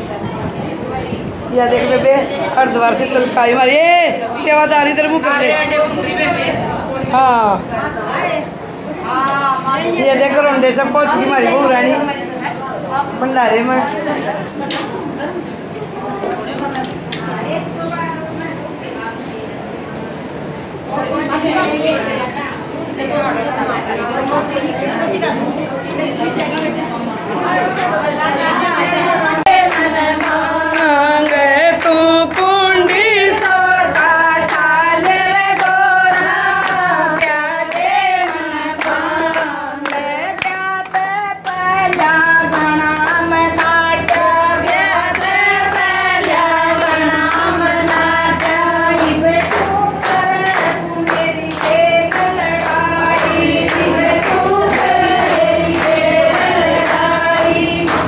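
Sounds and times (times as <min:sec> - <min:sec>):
women singing together: 0:23.0 - 0:58.0
hand-clapping on the beat: 0:29.4 - 0:58.0.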